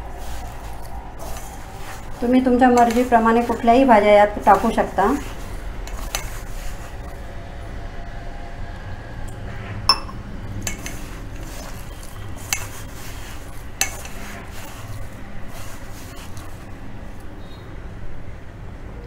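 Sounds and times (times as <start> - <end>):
hands kneading dough: 0.0 - 7.2, 10.5 - 17.4
metallic clinks on steel bowl: 9.9 - 10.9.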